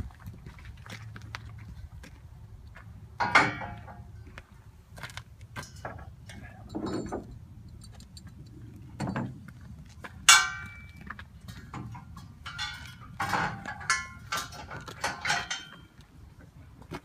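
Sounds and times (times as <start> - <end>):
metal ramps clanking: 3.2 - 4.4, 5.5 - 16.0.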